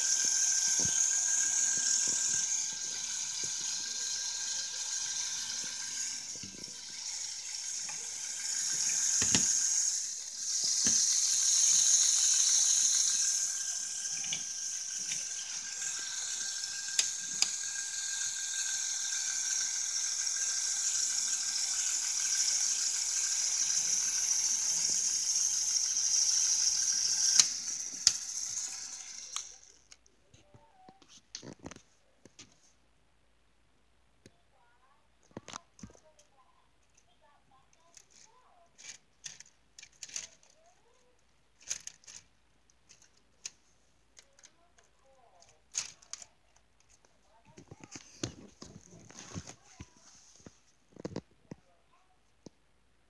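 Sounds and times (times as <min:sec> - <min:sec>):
electric motors and gears whirring: 0:00.0 - 0:30.0.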